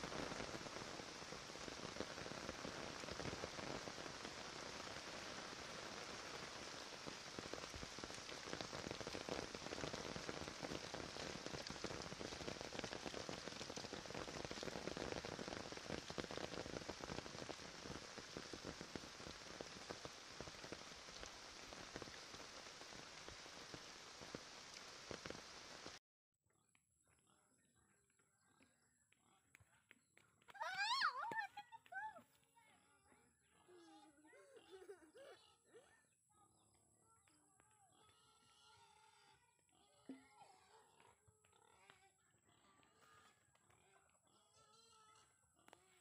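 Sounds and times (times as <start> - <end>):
steady rain falling: 0.0 - 26.0, 30.4 - 32.2.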